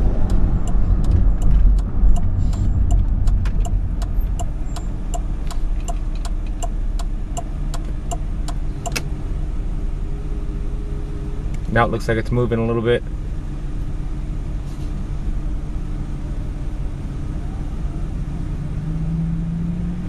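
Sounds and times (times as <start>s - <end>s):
turn signal ticking: 0.0s - 9.2s
car engine and road rumble: 0.0s - 20.0s
turn signal click: 0.2s - 9.1s.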